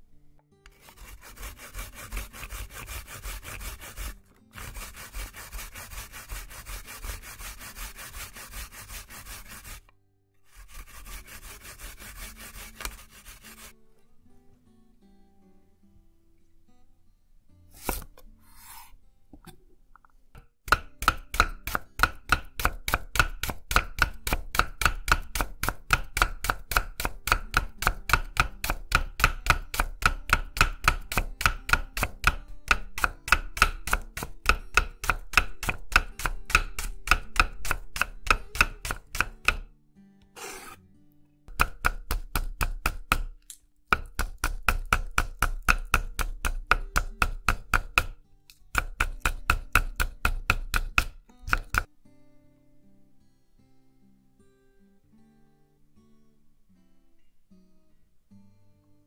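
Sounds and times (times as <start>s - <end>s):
knife slicing on wooden board: 0.7s - 9.8s, 10.5s - 13.7s, 17.7s - 19.0s, 40.4s - 40.8s.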